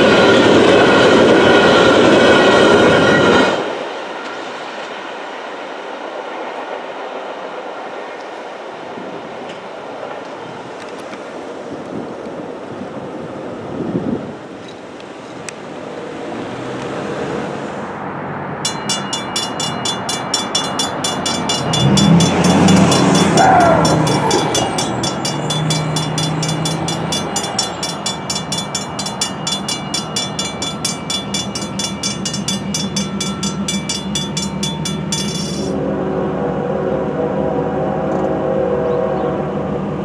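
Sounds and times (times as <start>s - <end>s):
road vehicle passing: 15.7s - 18.6s, 21.4s - 27.2s
railroad crossing bell ringing: 18.6s - 35.8s.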